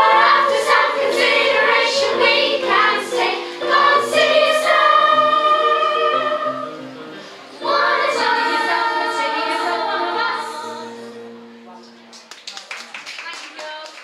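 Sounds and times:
children's choir singing: 0.0 - 11.1.

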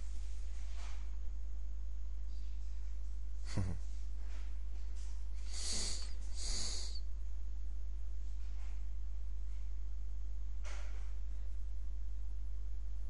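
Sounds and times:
low electrical hum: 0.0 - 13.0
hissy breaths close to microphone: 5.4 - 7.0.

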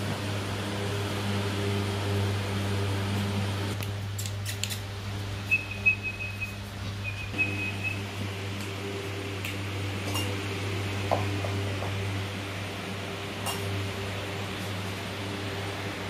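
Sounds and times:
electric fan humming: 0.0 - 16.0
thin high whine: 4.5 - 16.0.

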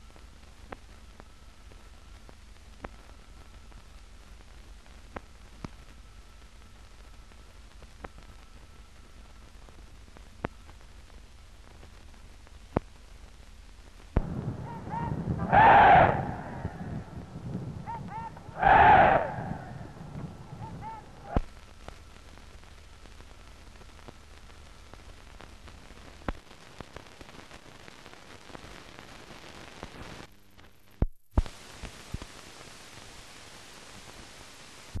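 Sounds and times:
faint film hiss: 0.0 - 35.0
short noisy burst: 14.3 - 21.4.

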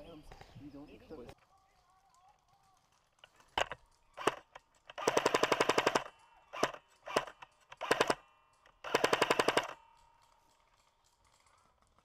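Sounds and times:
airsoft rifle firing: 3.4 - 10.0.

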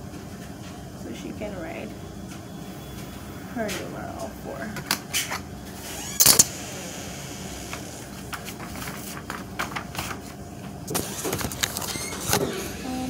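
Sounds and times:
paper rustling: 8.3 - 12.6.

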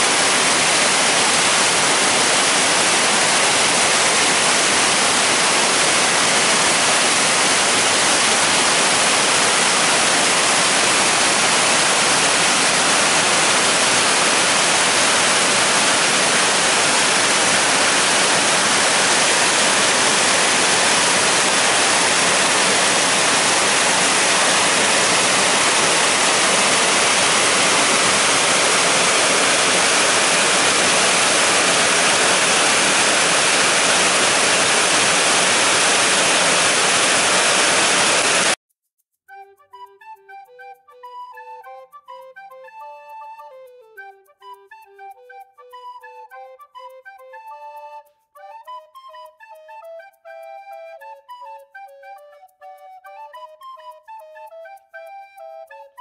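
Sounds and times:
river water rushing over weir: 0.0 - 38.6.

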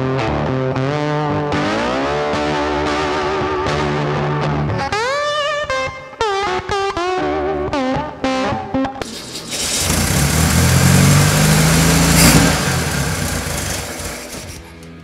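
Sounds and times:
electric guitar music: 0.0 - 15.0
car engine starting and revving: 9.0 - 14.8.

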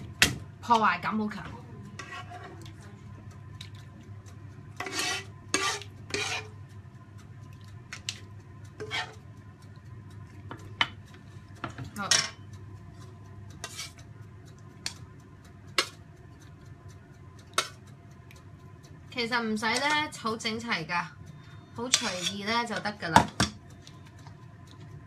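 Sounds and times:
low steady hum: 0.0 - 25.0
metal spoon scraping a pan: 2.0 - 2.6, 4.8 - 6.6, 8.8 - 9.3, 13.6 - 14.0, 21.9 - 22.9.

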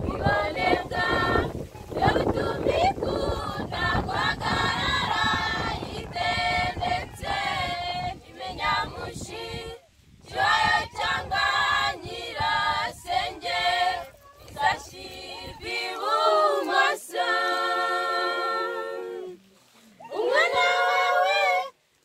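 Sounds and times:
women's choir singing: 0.0 - 19.4, 20.0 - 21.8.

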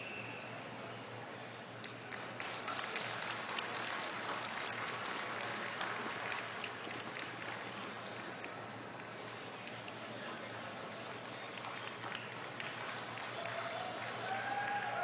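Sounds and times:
hall background noise: 0.0 - 15.0
audience clapping: 1.9 - 9.4, 10.9 - 15.0.

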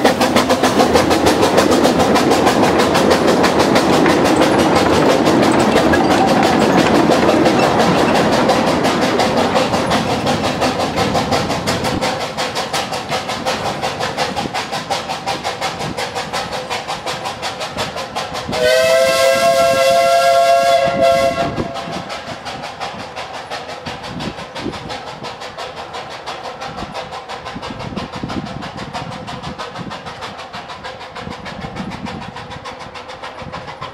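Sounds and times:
steam locomotive chuffing: 0.0 - 33.9
steam whistle blowing: 18.6 - 21.9.

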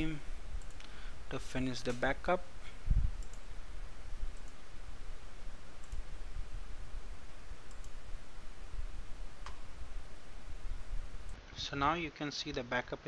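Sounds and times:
low background hum: 0.0 - 13.0
computer mouse clicking: 0.6 - 0.9, 3.2 - 3.5, 4.3 - 4.6, 5.8 - 6.1, 7.6 - 8.0.

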